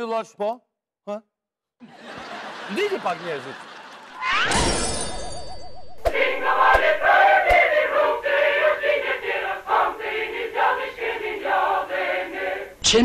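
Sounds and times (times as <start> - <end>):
choir singing: 6.0 - 12.8.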